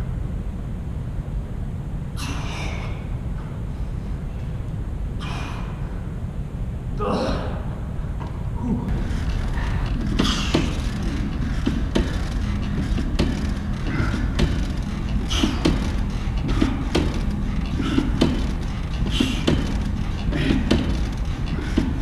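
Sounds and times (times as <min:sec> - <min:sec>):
low rumble: 0:00.0 - 0:22.0
breathy exhales: 0:02.2 - 0:03.2, 0:05.2 - 0:06.1
bench knocking and clicking: 0:08.9 - 0:22.0.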